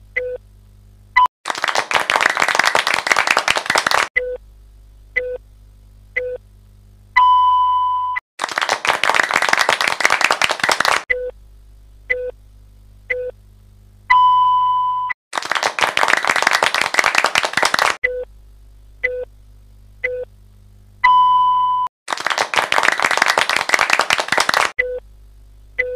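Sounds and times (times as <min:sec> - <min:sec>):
applause: 0:01.4 - 0:04.1, 0:08.4 - 0:11.1, 0:15.3 - 0:18.0, 0:22.1 - 0:24.8
steady beep: 0:07.2 - 0:08.2, 0:14.1 - 0:15.1, 0:21.0 - 0:21.9
short timer beeps: 0:21.0 - 0:21.8.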